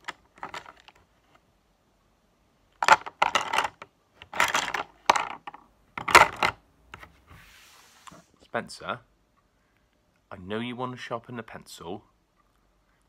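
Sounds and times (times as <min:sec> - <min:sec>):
wooden pencils clattering in pot: 0:00.0 - 0:01.0, 0:02.8 - 0:06.6.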